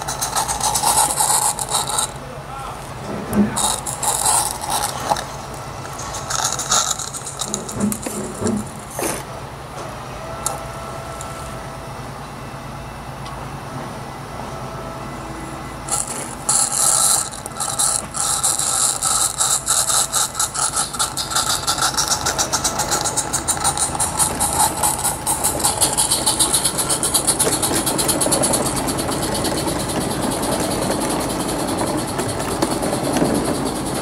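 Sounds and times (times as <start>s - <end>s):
coach wheels rolling on track: 0.0s - 34.0s
steam locomotive exhaust chuffs: 0.0s - 34.0s
steam hiss: 15.8s - 34.0s.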